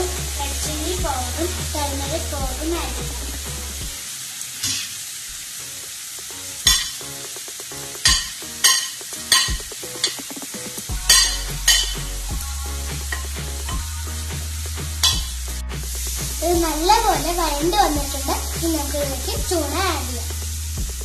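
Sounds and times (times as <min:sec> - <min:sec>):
onions and tomatoes sizzling: 0:00.0 - 0:21.0
spoon clinking against pan: 0:08.0 - 0:10.3, 0:11.1 - 0:12.0.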